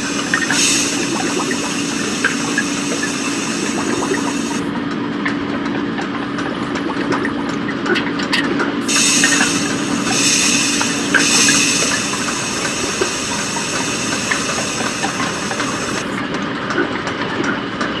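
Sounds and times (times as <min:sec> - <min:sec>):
steam hissing: 0:00.0 - 0:04.7, 0:08.8 - 0:16.2
machinery hum: 0:00.0 - 0:04.9, 0:08.8 - 0:16.3
mechanical clatter of clicks and clanks: 0:00.0 - 0:18.0.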